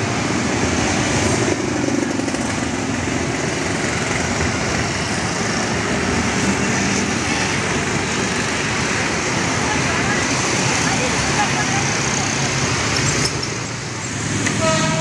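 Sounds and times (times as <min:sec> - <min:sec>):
electric train running overhead: 0:00.0 - 0:15.0
motorbike engines: 0:00.0 - 0:15.0
street traffic: 0:00.0 - 0:15.0.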